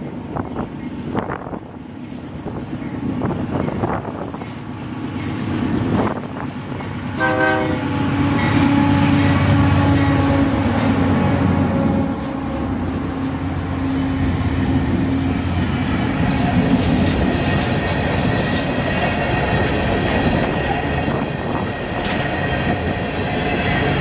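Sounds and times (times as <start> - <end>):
diesel locomotive engines: 0.0 - 24.0
train horn: 7.1 - 14.2.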